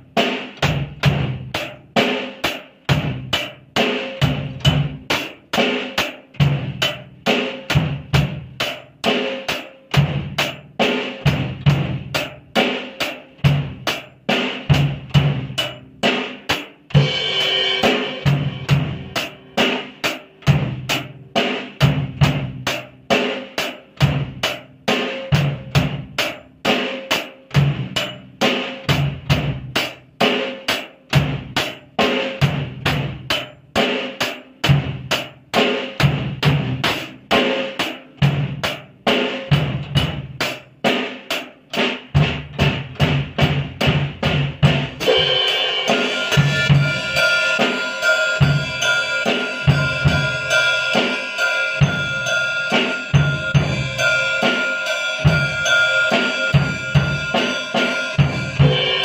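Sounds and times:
drum kit rock beat: 0.0s - 59.0s
cymbal wash: 45.0s - 59.0s.

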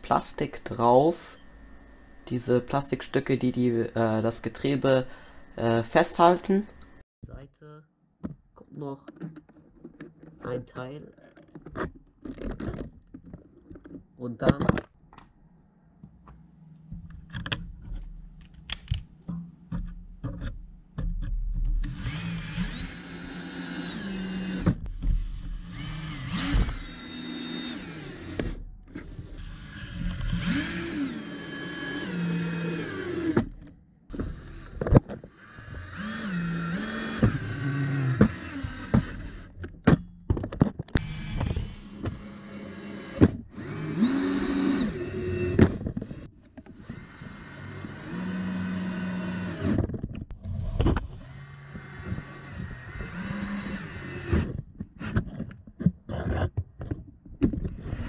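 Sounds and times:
cordless drill driving screws: 21.8s - 39.6s, 41.0s - 49.8s, 51.1s - 55.4s, 57.6s - 58.0s.

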